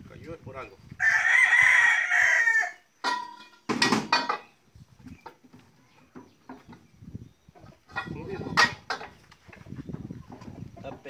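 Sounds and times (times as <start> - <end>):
rooster crowing: 1.0 - 2.9.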